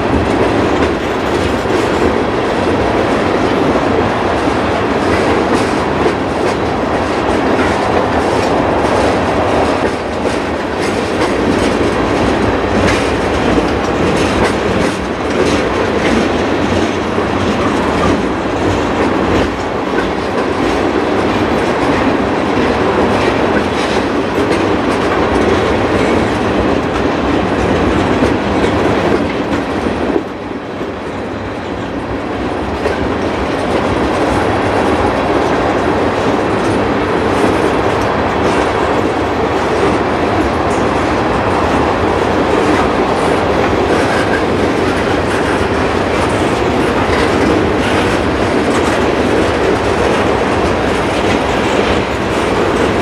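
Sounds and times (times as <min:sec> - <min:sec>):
train wheels clattering over rail joints: 0:00.0 - 0:53.0.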